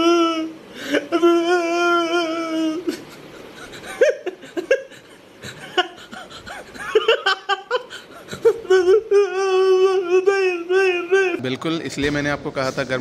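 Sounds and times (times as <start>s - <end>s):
people laughing: 2.6s - 11.3s.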